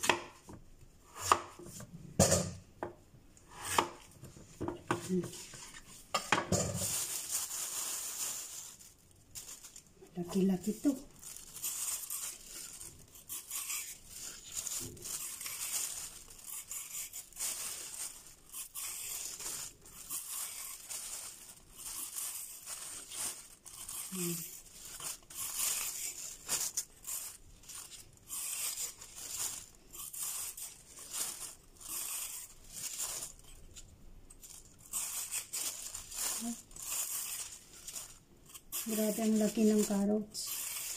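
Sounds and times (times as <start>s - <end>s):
vegetable peeler scraping carrot: 11.6s - 21.2s, 21.8s - 33.4s, 34.8s - 40.9s.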